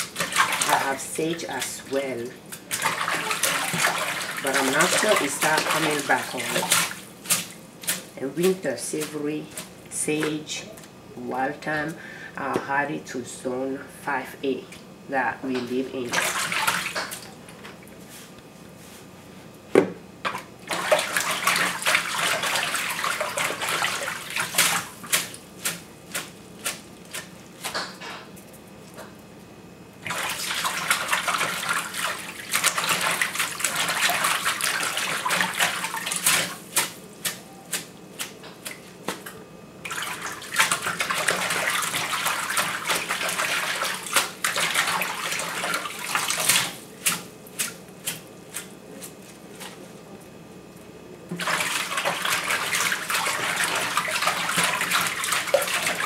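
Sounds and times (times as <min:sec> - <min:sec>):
water splashing and sloshing: 0:00.0 - 0:10.9, 0:15.6 - 0:19.0, 0:20.2 - 0:29.2, 0:30.0 - 0:50.0, 0:51.3 - 0:56.0.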